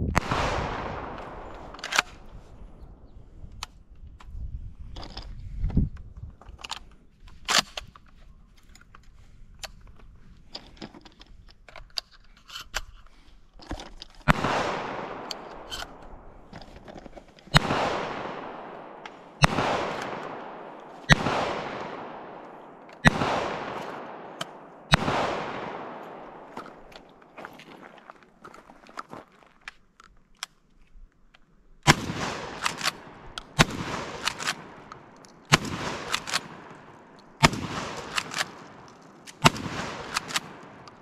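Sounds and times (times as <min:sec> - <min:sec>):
shotgun shots echoing: 0:00.1 - 0:02.9, 0:14.3 - 0:16.5, 0:17.5 - 0:27.3, 0:31.9 - 0:41.0
shotgun handling clicks: 0:00.7 - 0:02.4, 0:06.4 - 0:27.8, 0:28.5 - 0:41.0.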